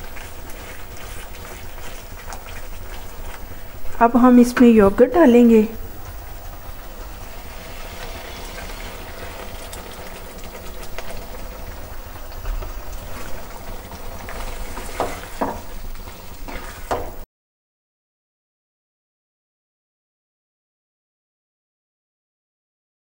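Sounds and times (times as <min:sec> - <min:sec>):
spatula scraping wok: 0:00.0 - 0:04.6, 0:05.8 - 0:17.2
gravy sizzling in a wok: 0:00.0 - 0:17.3.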